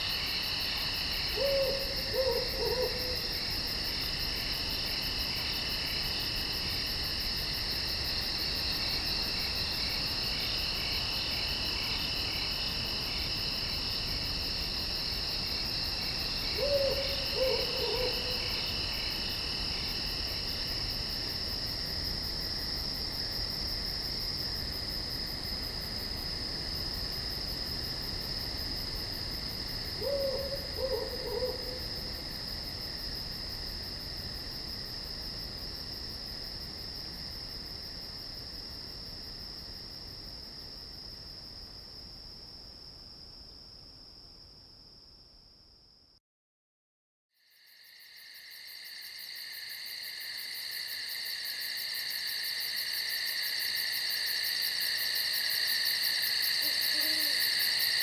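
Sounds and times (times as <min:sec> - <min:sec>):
crickets and insects trilling: 0:00.0 - 0:43.4, 0:47.4 - 0:58.0
owl hooting: 0:01.3 - 0:03.2, 0:16.5 - 0:18.5, 0:30.0 - 0:31.8, 0:56.6 - 0:57.4.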